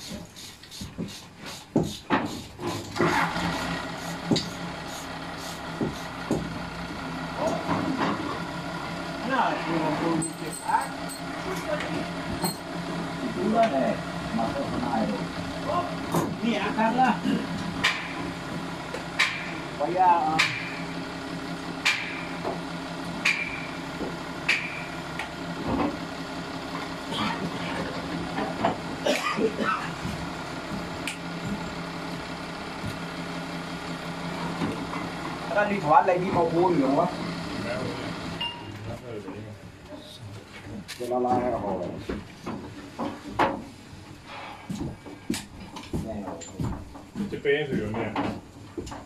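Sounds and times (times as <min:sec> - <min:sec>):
low machine hum: 0:03.9 - 0:40.4.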